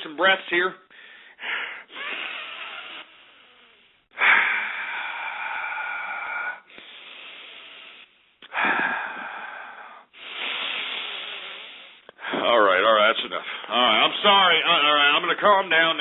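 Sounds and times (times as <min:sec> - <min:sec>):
man breathing deeply: 0:00.9 - 0:12.5.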